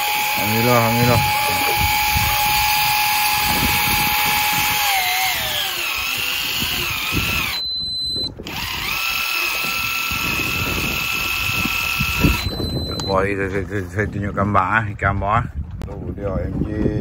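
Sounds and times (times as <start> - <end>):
electric fishing reel motor whining: 0.0 - 13.3.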